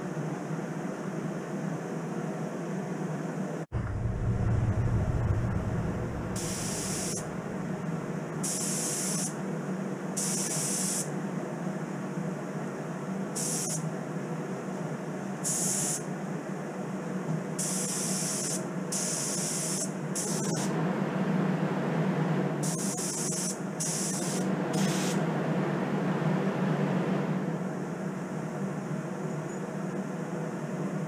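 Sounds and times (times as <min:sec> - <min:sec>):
steady low hum: 0:02.8 - 0:08.5
spray gun air hiss bursts: 0:06.4 - 0:09.4, 0:10.2 - 0:11.1, 0:13.4 - 0:13.9, 0:15.4 - 0:16.1, 0:17.6 - 0:20.7, 0:22.6 - 0:25.2.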